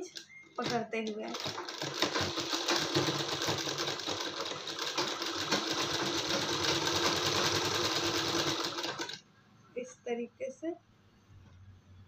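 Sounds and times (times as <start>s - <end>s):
sewing machine motor hum: 0.6s - 9.2s
sewing machine stitching clatter: 0.6s - 9.2s.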